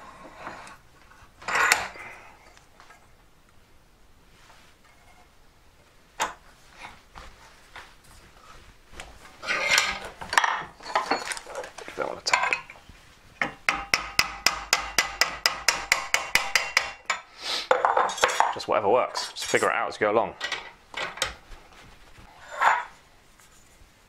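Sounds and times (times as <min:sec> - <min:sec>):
metal plates clinking and scraping: 0:01.4 - 0:03.1, 0:04.8 - 0:05.3, 0:09.3 - 0:12.8, 0:13.4 - 0:21.4, 0:22.3 - 0:23.0.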